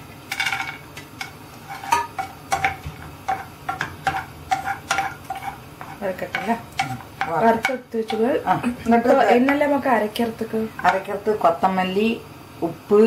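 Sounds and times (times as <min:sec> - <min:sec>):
wooden spoon scraping a pan: 0:00.3 - 0:09.9.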